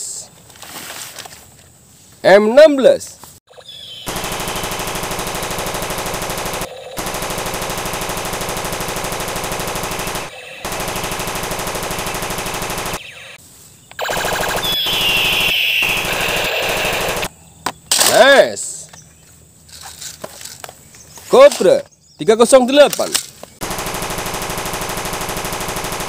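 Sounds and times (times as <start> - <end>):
toy gun electronic machine-gun bursts: 3.5 - 13.4, 14.0 - 17.3, 23.6 - 26.0.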